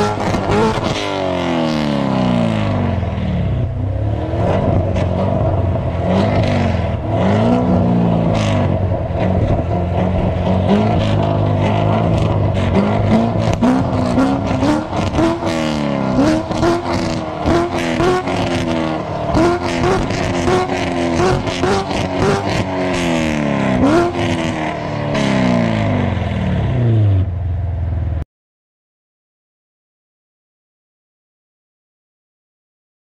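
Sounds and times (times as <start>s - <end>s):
car engine revving: 0.0s - 27.6s
exhaust crackles: 2.2s - 27.4s.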